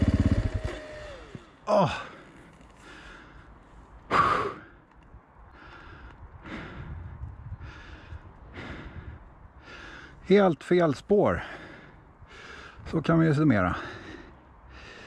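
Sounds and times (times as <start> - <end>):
person breathing hard: 0.6 - 4.8, 5.5 - 10.2, 11.4 - 12.9, 13.8 - 15.0.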